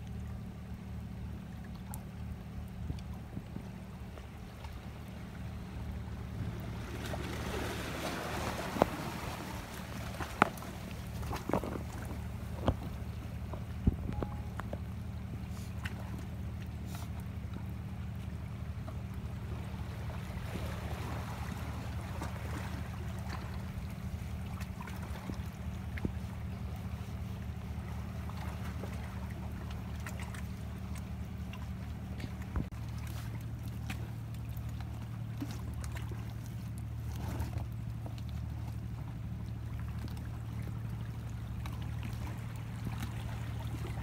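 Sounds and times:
low rumble: 0.0 - 44.0
water lapping among rocks: 0.0 - 44.0
waves washing over rocks: 6.4 - 12.7.

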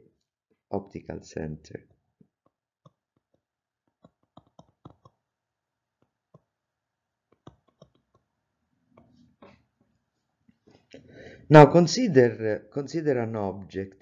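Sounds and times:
stylus tapping on a screen: 2.4 - 5.2, 7.3 - 8.3.

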